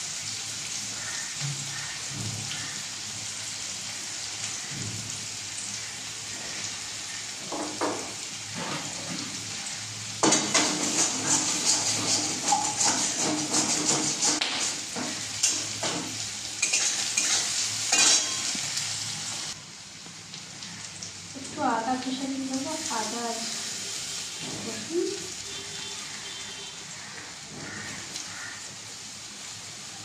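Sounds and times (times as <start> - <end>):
food sizzling in hot oil: 0.0 - 30.0
spatula scraping pan: 10.2 - 18.6.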